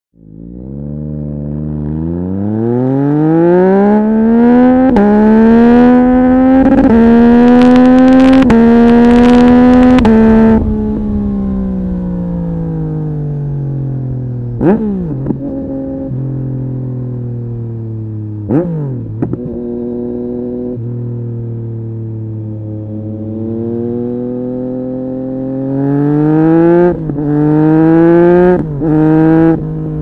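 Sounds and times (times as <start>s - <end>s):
motorcycle engine accelerating: 0.2s - 30.0s
motorcycle rev blips: 0.4s - 11.0s, 18.4s - 21.1s.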